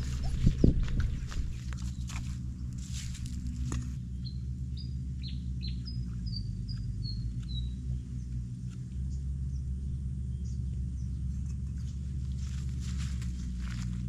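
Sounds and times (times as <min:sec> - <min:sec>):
low rumble: 0:00.0 - 0:14.0
bird chirping: 0:04.0 - 0:12.1.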